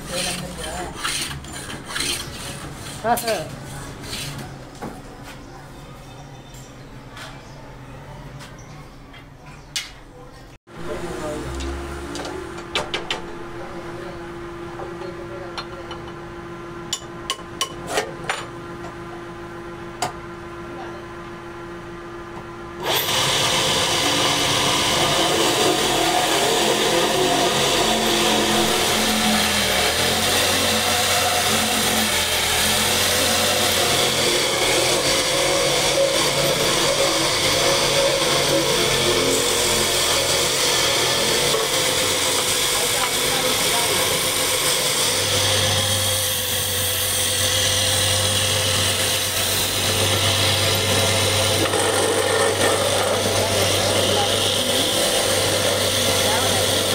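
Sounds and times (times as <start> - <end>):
wood lathe humming: 0.0 - 3.5, 22.8 - 56.9
sanding spinning wood: 0.0 - 4.4, 22.9 - 56.9.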